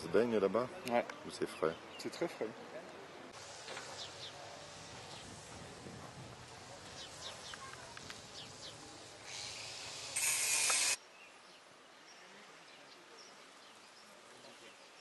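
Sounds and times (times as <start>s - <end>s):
birds chirping: 0.0s - 5.6s, 6.6s - 15.0s
hiss rising to loud rush: 3.4s - 11.0s.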